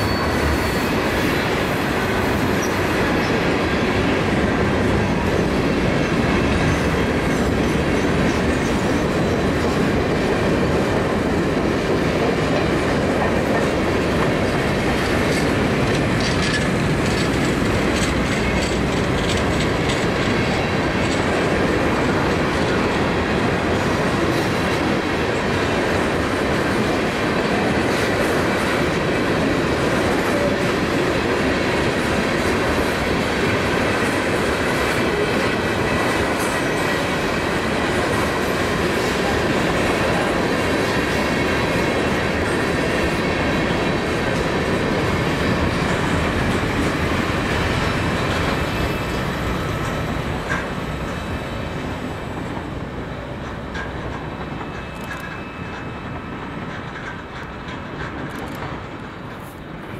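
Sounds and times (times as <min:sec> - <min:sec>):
faint high wheel squeal: 0:00.0 - 0:03.4, 0:54.5 - 0:56.6
train wheels rumbling on rail: 0:00.0 - 0:59.9
clicking over rail joints: 0:11.8 - 0:26.9, 0:27.5 - 0:51.5, 0:52.3 - 0:59.9.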